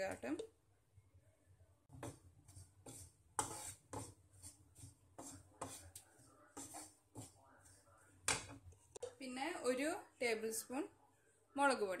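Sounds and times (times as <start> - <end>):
wooden spatula scraping pan: 1.9 - 9.2.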